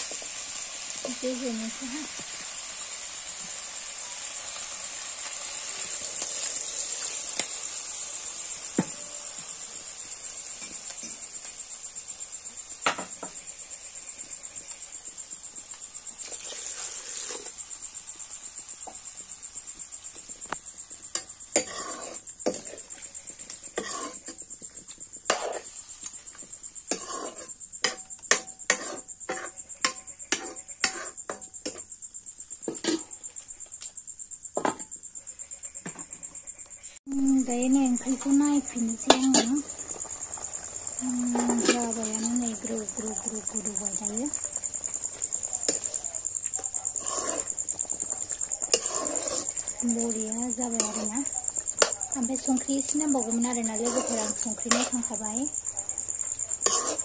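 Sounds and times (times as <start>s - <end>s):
crickets chirping: 0.0s - 57.0s
water poured into hot wok: 1.8s - 8.8s, 16.2s - 18.4s
metal spatula scraping a wok: 2.1s - 13.4s, 16.2s - 19.0s, 20.9s - 31.9s, 32.6s - 33.4s, 38.1s - 57.0s.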